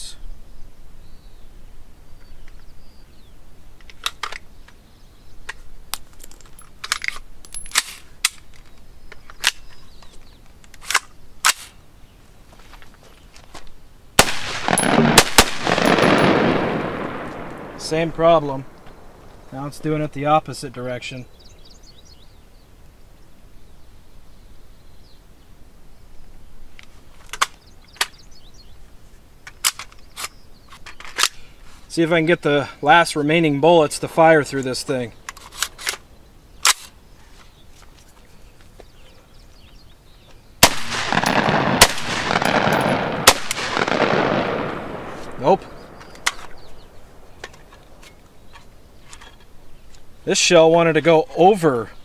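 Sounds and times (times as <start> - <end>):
pistol action metal clicks: 5.5 - 9.8, 45.0 - 49.3
gun action clacking: 40.7 - 49.5.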